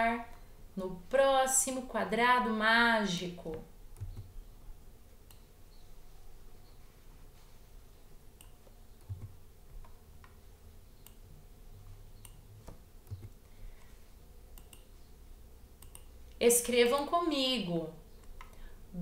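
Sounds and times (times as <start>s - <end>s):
computer mouse clicks: 3.9s - 4.3s, 5.2s - 5.5s, 8.4s - 10.4s, 11.0s - 11.2s, 12.2s - 15.1s, 15.8s - 16.2s, 18.2s - 18.6s.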